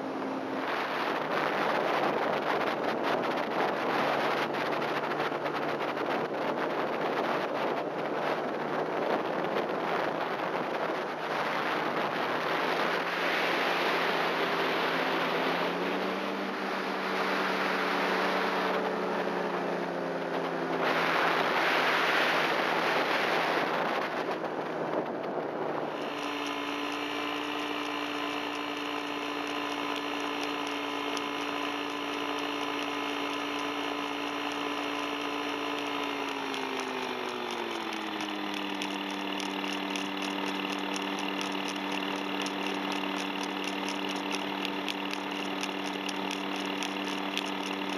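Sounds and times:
wind noise on microphone: 0.0 - 32.3
paramotor engine and propeller: 0.0 - 47.9.

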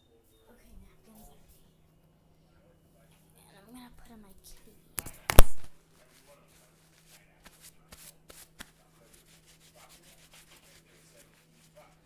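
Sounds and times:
faint rubbing and rustling: 5.2 - 12.0.

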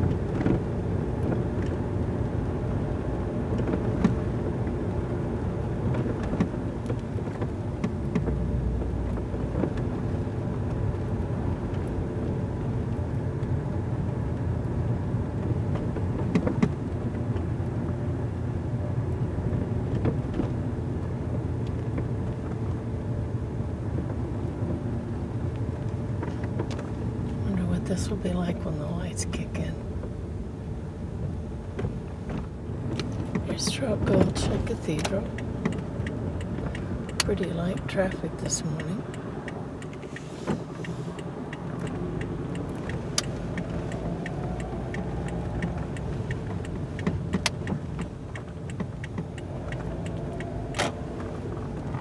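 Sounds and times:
engine and tyre rumble: 0.0 - 52.0
faint ticks inside car: 31.8 - 52.0.

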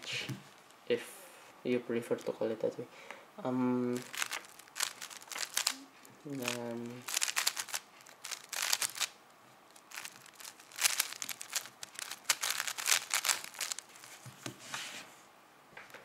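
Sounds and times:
puzzle cube clicking: 4.0 - 9.2, 9.8 - 13.9.

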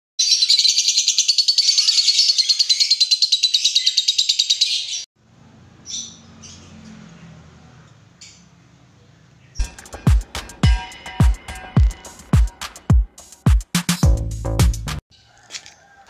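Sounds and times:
lovebirds chattering: 0.2 - 5.1, 5.8 - 9.8.

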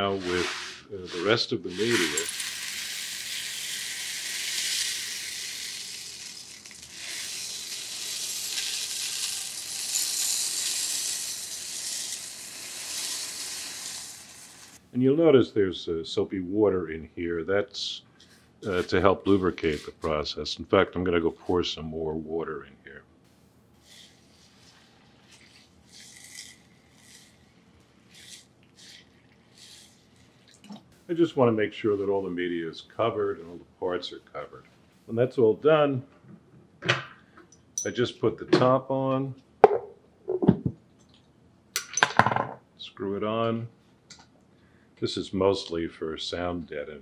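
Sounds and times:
metal media pouring into water: 1.8 - 14.8.

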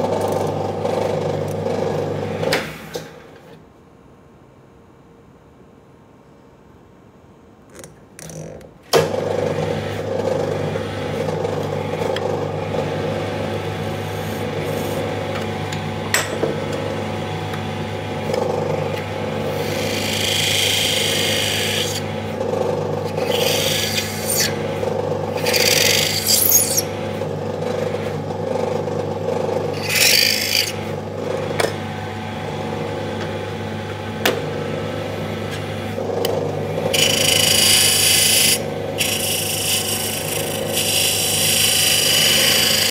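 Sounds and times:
lathe motor humming: 9.0 - 42.9
turning tool cutting wood: 18.2 - 31.7, 36.0 - 42.9.

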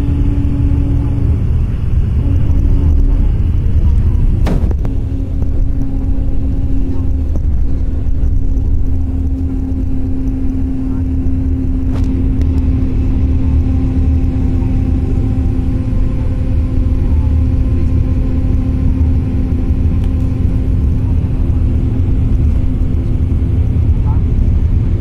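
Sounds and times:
held hum: 0.0 - 25.0
road and engine rumble: 0.0 - 25.0.

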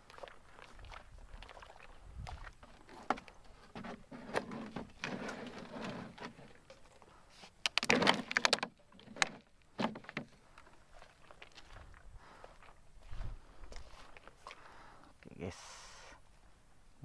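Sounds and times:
sharp plastic clatter: 7.6 - 10.3
plastic jerry can knocking and rattling: 7.7 - 10.4.

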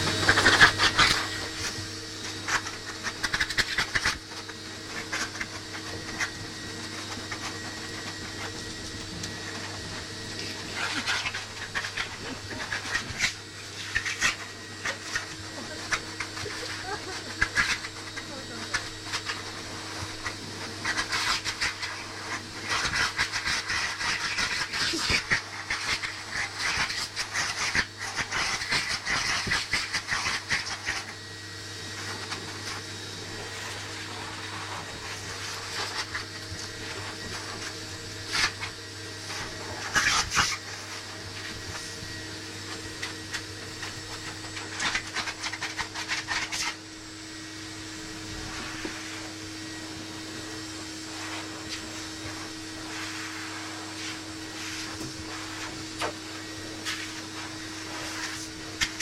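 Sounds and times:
pet dryer blowing air: 0.0 - 59.0.

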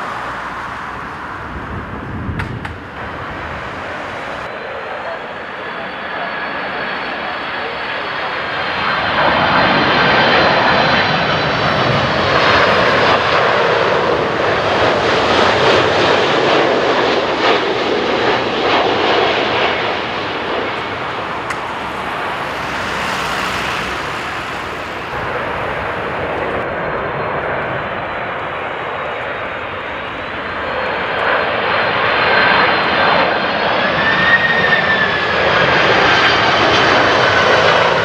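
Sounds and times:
jet airliner passing: 0.0 - 38.0.

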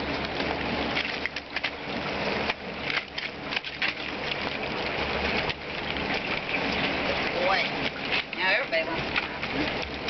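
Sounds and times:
rain falling: 4.1 - 10.0.

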